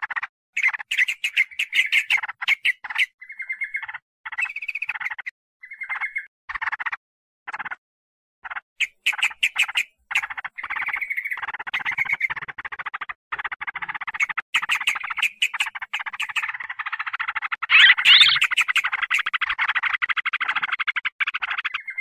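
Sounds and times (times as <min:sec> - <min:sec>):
bulbuls chattering: 0:17.7 - 0:19.2.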